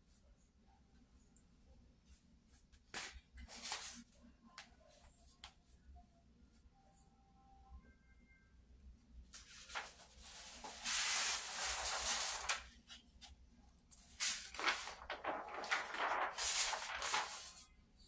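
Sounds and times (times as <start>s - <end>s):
paper rustling: 3.0s - 4.0s, 9.3s - 17.7s.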